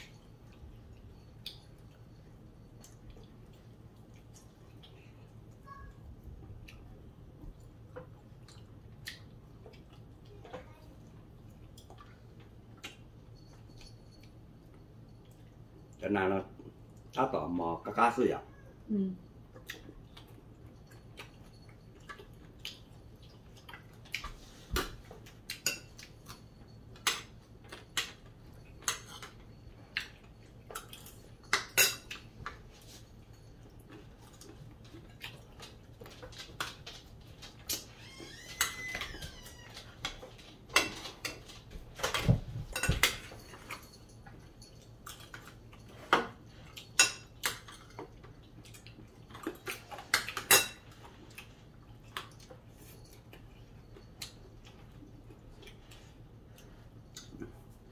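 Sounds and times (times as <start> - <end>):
cutlery clinking on plates: 24.8 - 33.6, 40.0 - 44.1.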